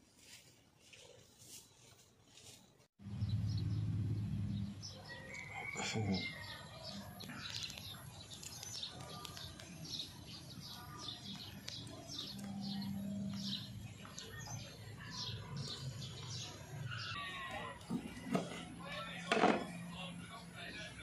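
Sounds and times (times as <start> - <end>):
small birds chirping: 3.0 - 18.2.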